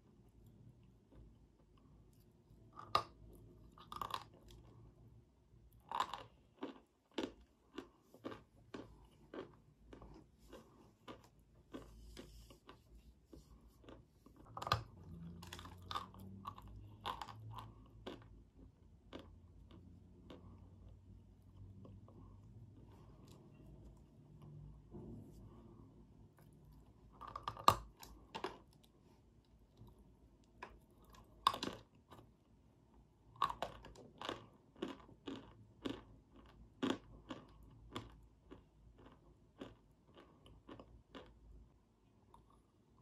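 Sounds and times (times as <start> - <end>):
chewing crunches: 2.7 - 4.9, 5.7 - 20.9, 26.4 - 29.0, 30.6 - 32.3, 33.4 - 41.4.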